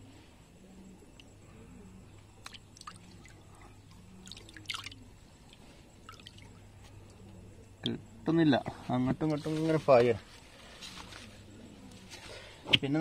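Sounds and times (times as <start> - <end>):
water dripping and splashing: 2.4 - 6.6.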